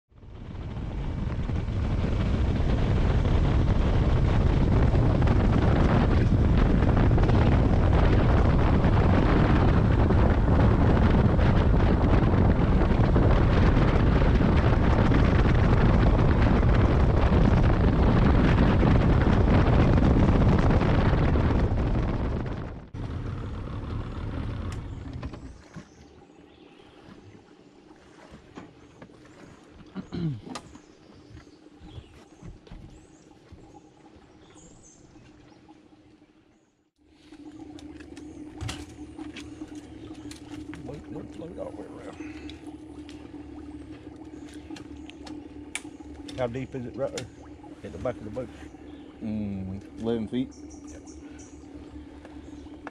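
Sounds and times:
outboard motor running: 0:00.1 - 0:52.9
wind: 0:00.1 - 0:52.9
water rushing: 0:37.0 - 0:52.9.

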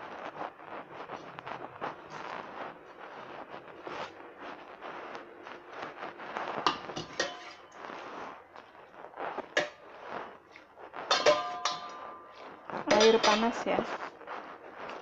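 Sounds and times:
hands kneading dough in bowl: 0:00.0 - 0:15.0
ladle clinking against metal bowl: 0:06.7 - 0:07.7, 0:11.1 - 0:13.6.

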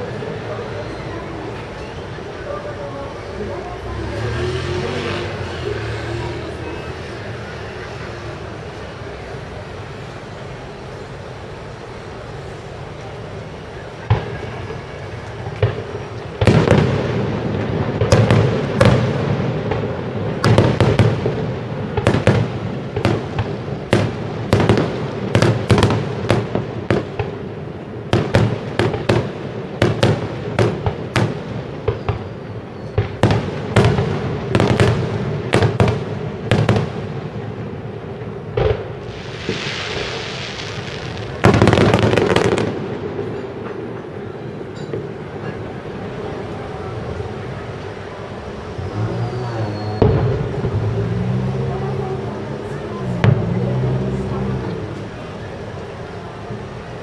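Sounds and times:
fireworks hissing: 0:10.8 - 0:44.0
fireworks bursting: 0:10.8 - 0:55.9.

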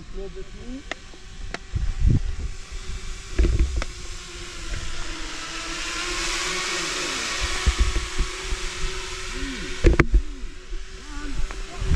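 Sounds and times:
steady hum: 0:00.0 - 0:11.9
wind buffeting microphone: 0:00.4 - 0:05.0, 0:07.4 - 0:09.0.

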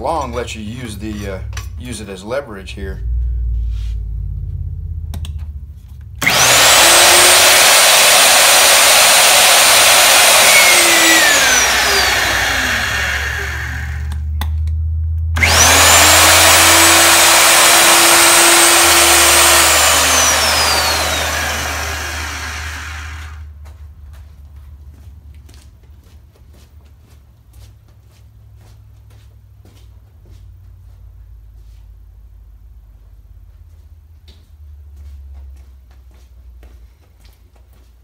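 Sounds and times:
low hum: 0:00.0 - 0:07.5, 0:10.4 - 0:23.5
electric drill motor whining: 0:06.2 - 0:14.2, 0:15.4 - 0:23.5.

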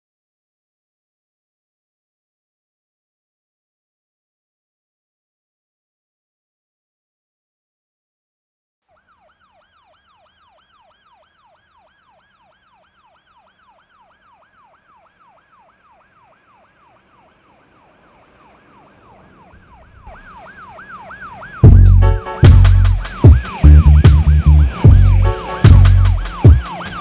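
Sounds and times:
synthetic siren tone sweeping: 0:08.9 - 0:27.0
low rumble: 0:21.6 - 0:26.3.

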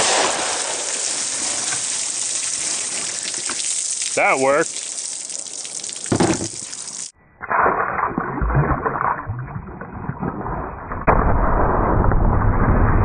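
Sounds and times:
sharp crack: 0:00.0 - 0:02.2.

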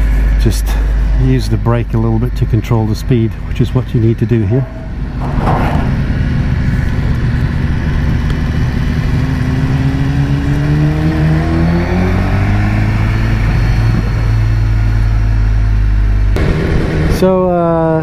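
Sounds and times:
motorcycle engine accelerating: 0:03.6 - 0:18.0.

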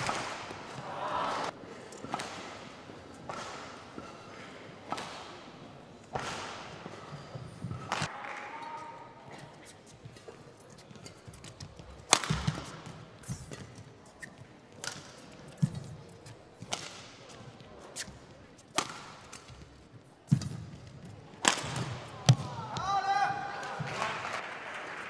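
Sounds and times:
rackets striking shuttlecock: 0:10.9 - 0:22.9.

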